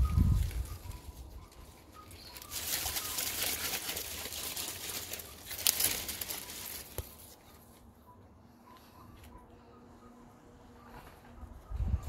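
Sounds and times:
leaves rustling and crinkling: 0.0s - 7.9s.

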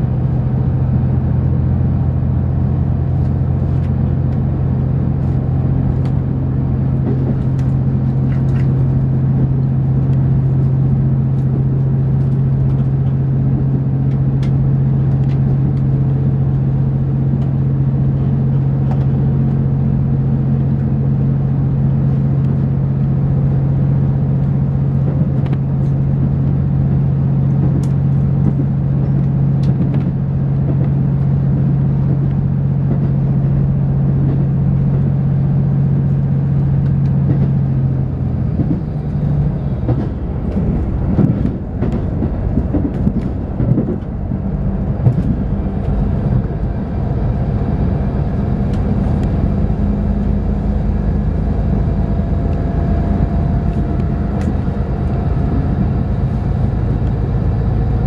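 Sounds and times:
train engine droning inside carriage: 0.0s - 58.0s.

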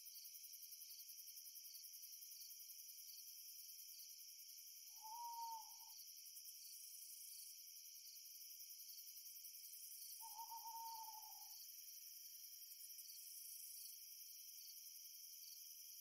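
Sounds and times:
crickets chirping: 0.0s - 16.0s
owl hooting: 5.0s - 5.9s, 10.2s - 11.5s.

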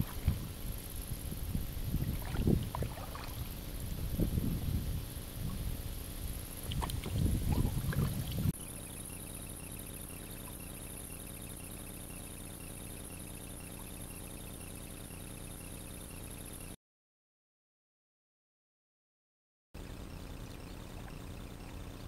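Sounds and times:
water gurgling against kayak: 0.0s - 8.6s
wind buffeting microphone: 0.0s - 8.6s
paddle strokes splashing: 2.0s - 3.6s, 6.6s - 8.5s.

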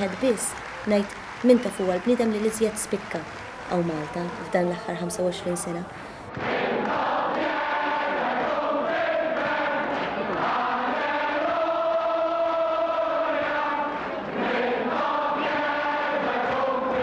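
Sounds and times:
crowd singing in unison: 6.2s - 17.0s.

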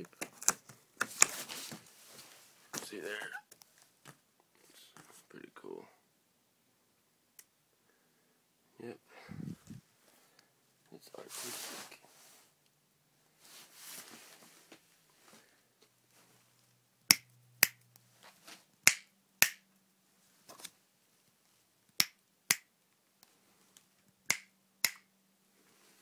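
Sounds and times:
finger snaps: 24.3s - 25.1s.

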